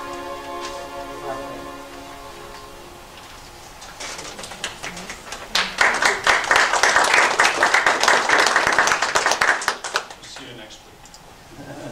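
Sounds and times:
audience applauding: 0:04.0 - 0:10.6.

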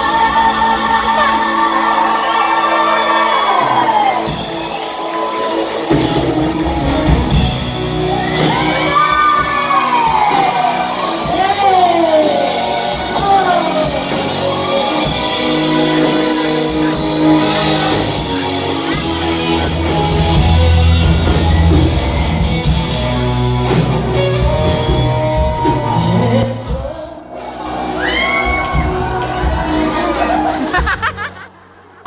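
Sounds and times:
woman singing: 0:00.0 - 0:03.9, 0:08.9 - 0:14.3, 0:24.2 - 0:27.4
live rock band playing: 0:00.0 - 0:32.0.

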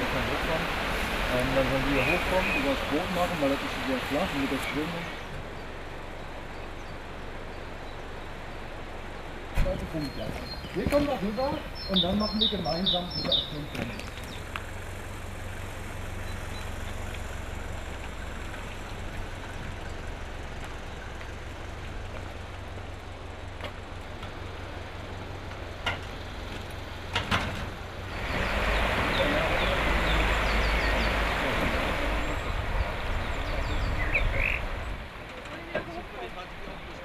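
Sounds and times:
steady rushing noise: 0:00.0 - 0:24.0
vehicle engine rumbling: 0:00.0 - 0:37.0.

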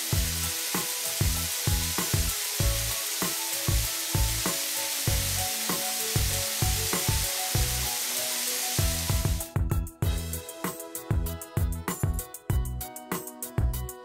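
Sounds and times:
water spraying from spray guns: 0:00.0 - 0:09.5
music with steady beat: 0:00.0 - 0:14.0.

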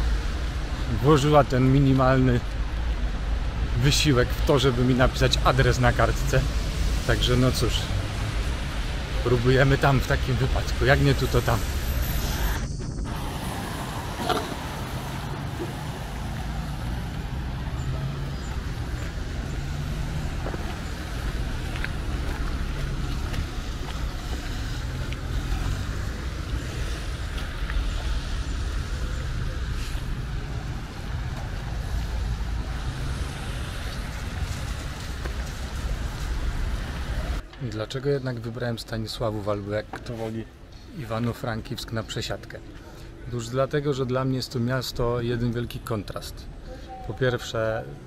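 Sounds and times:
traffic engine rumble: 0:00.0 - 0:48.0.

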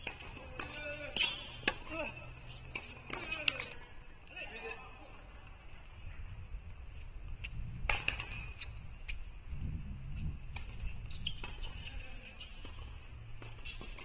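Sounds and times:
steady low rumble: 0:08.8 - 0:10.6.

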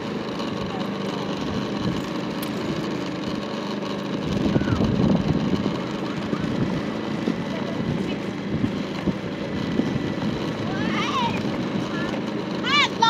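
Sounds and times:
small motorcycle engine running: 0:00.0 - 0:13.0
wind rumble on microphone: 0:04.2 - 0:12.1.

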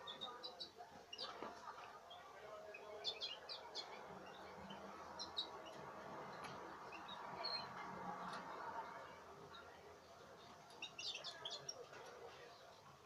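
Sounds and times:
faint steady background noise: 0:00.0 - 0:13.0.

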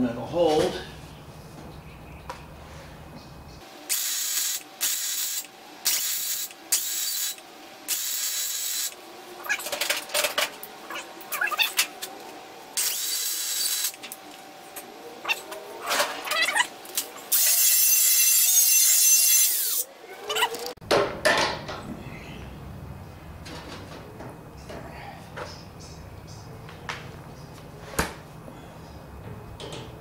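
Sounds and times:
welder arc crackle: 0:03.9 - 0:09.0, 0:12.8 - 0:14.3
angle grinder grinding: 0:10.8 - 0:14.4, 0:15.3 - 0:20.8.

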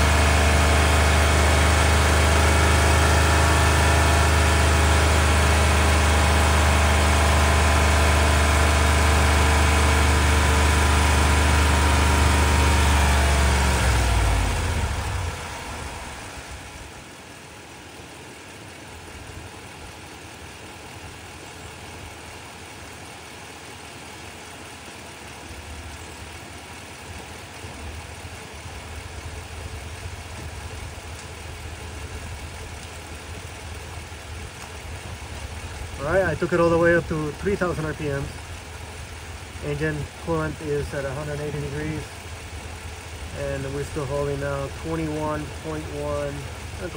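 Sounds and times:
engine revving then idling: 0:00.0 - 0:17.7, 0:18.4 - 0:46.9.

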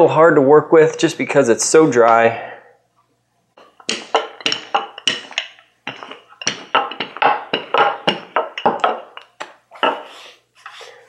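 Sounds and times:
rolling pin knocking on countertop: 0:03.6 - 0:10.0.

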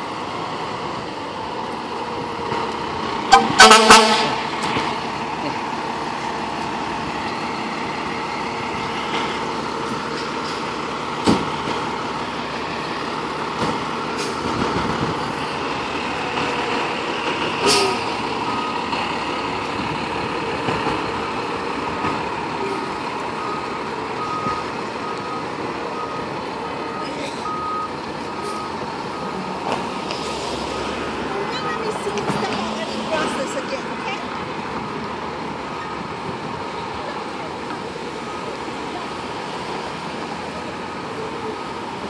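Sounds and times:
diesel engine running: 0:00.0 - 0:42.0
air brake hiss: 0:17.6 - 0:18.0
backup alarm beeping: 0:23.4 - 0:29.5.

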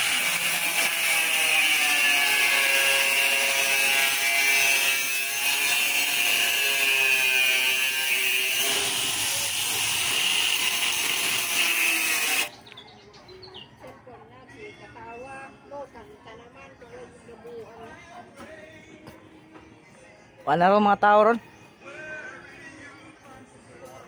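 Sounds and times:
power tool cutting steel sheet: 0:00.0 - 0:12.5.

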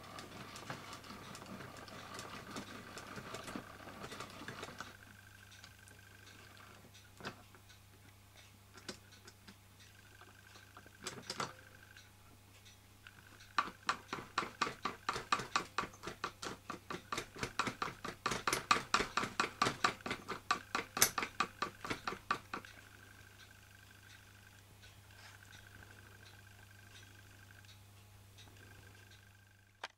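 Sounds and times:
gear train clicking: 0:00.0 - 0:06.7, 0:13.1 - 0:27.8.

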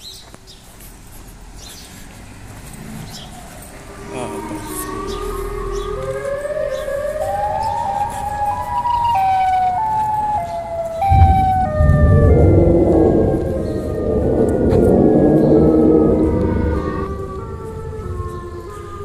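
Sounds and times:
wailing siren tone: 0:03.3 - 0:19.0
loud low rumble: 0:11.0 - 0:18.6.

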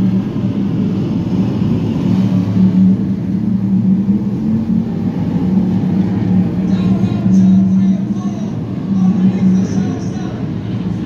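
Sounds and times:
stock car engines droning: 0:00.0 - 0:11.0.

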